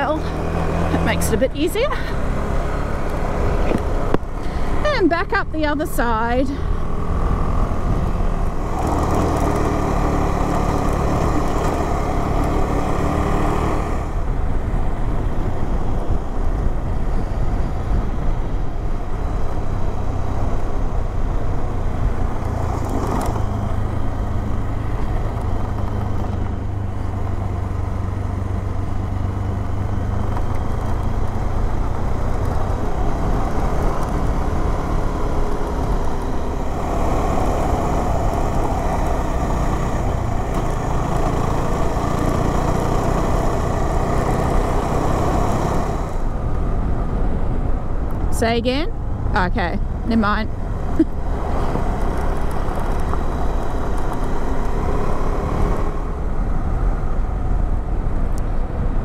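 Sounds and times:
wind noise: 0.0 - 9.8, 13.7 - 27.4
motorcycle engine running: 0.0 - 57.7.

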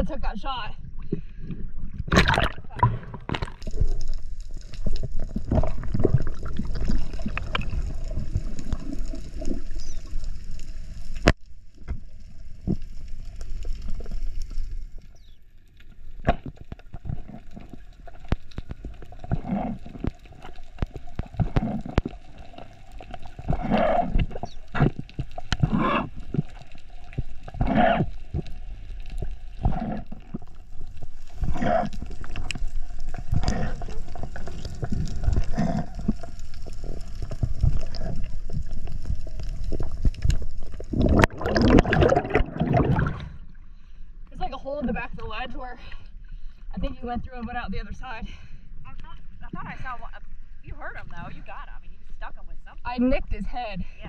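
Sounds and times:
sea water gurgling and sloshing: 0.0 - 54.0
water splashing: 1.1 - 43.6.

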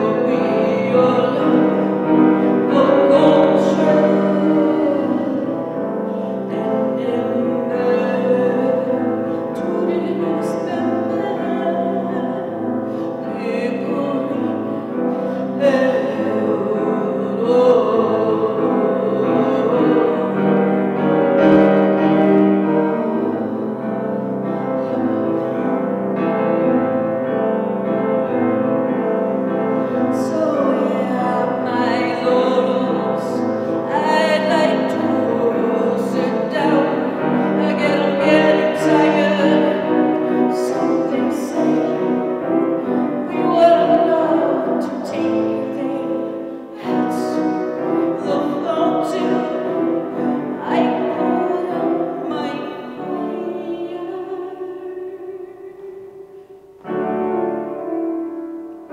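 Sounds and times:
piano chords: 0.0 - 58.9
woman singing slowly: 29.8 - 56.5.

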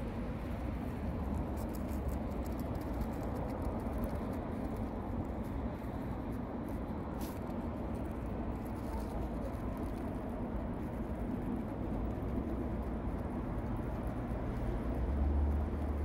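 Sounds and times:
low traffic rumble: 0.0 - 16.0
claws scratching soil: 0.9 - 12.4.

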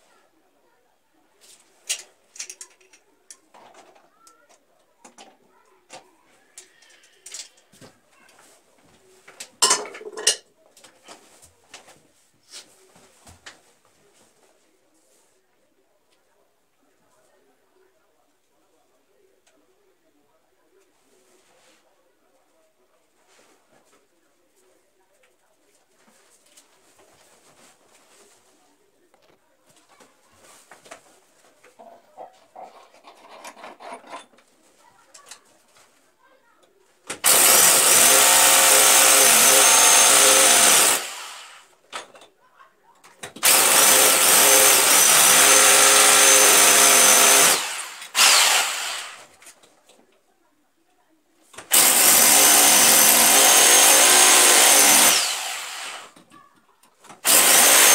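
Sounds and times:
tools clicking and knocking: 1.8 - 4.0, 9.6 - 10.5, 32.8 - 34.5
scraping and rubbing: 30.4 - 36.0.

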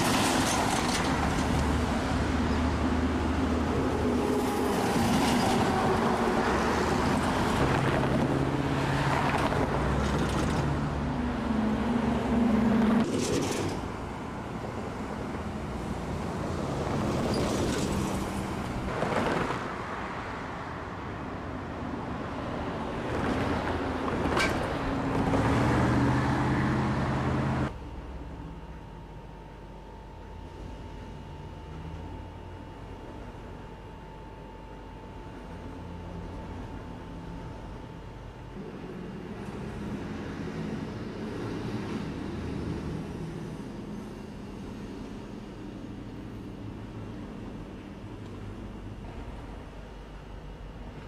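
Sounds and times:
vehicle engines running: 0.0 - 28.4.

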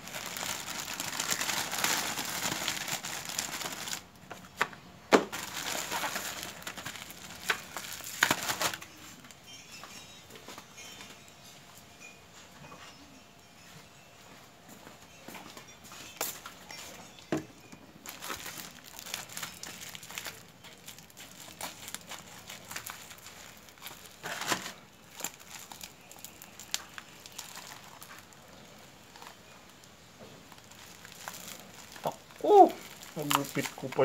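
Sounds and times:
plastic packaging crinkling: 0.0 - 9.7, 18.0 - 34.0.

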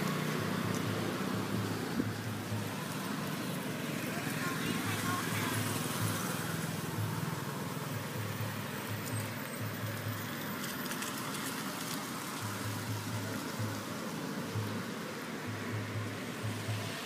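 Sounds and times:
outdoor background hiss: 0.0 - 17.0.

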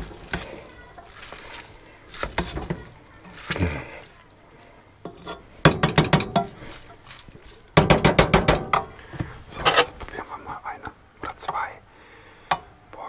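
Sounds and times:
pot scraping on hob grate: 0.0 - 4.2, 5.0 - 10.0.

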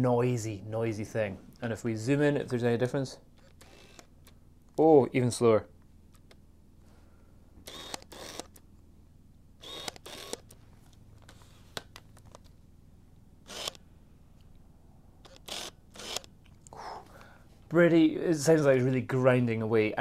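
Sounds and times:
lens autofocus whirring: 3.3 - 4.5, 7.6 - 8.8, 9.6 - 12.6, 13.4 - 14.6, 15.2 - 16.5.

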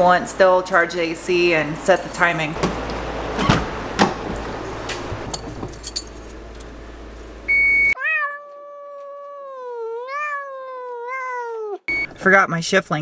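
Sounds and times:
keys jingling: 5.2 - 7.4
short loud beep: 7.5 - 8.0, 11.9 - 12.2
cat meowing: 8.0 - 11.9.

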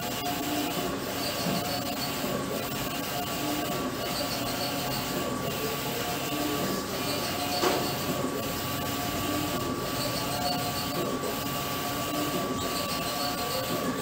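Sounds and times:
printer hum with high whine: 0.0 - 14.0
printer carriage shuttling: 7.4 - 8.3.

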